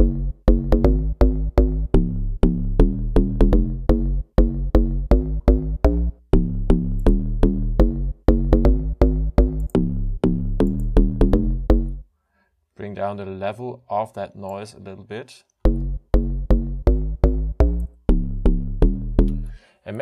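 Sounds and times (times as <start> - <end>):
programmed drum beat: 0.0 - 12.0, 15.6 - 19.4
synth bass pattern: 0.0 - 12.0, 15.6 - 19.6.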